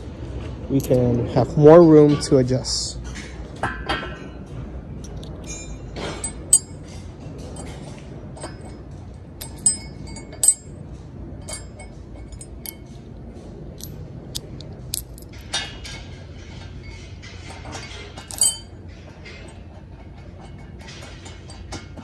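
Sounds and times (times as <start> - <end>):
bolt and washer clinking on steel: 0.8 - 1.0, 5.0 - 5.6, 6.2 - 6.8, 9.4 - 10.7, 11.4 - 12.8, 13.8 - 16.0, 18.2 - 18.7.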